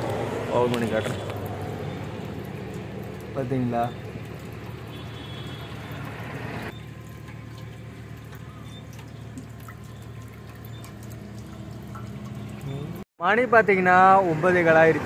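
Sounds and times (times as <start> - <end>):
fuel dripping and dribbling: 0.0 - 13.0.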